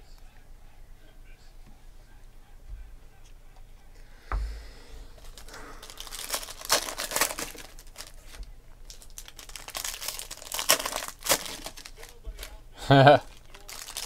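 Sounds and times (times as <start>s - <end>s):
thump: 4.3s - 4.7s
foil wrapper crinkling and tearing: 5.2s - 12.6s, 13.2s - 14.0s.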